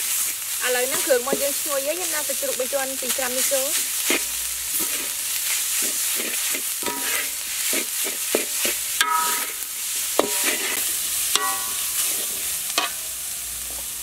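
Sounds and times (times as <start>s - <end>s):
food sizzling: 0.0s - 14.0s
ladle scraping a wok: 3.4s - 13.8s
ladle ringing against wok: 9.0s - 9.6s, 11.3s - 12.0s.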